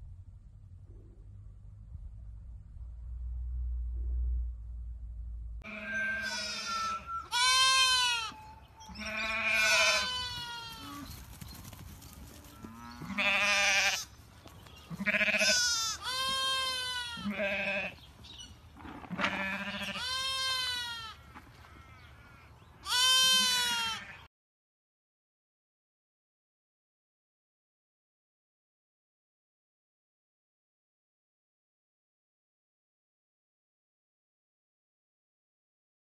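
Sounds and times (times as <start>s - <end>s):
sheep bleating: 5.6s - 11.2s, 12.3s - 14.1s, 14.8s - 18.0s, 18.9s - 24.3s.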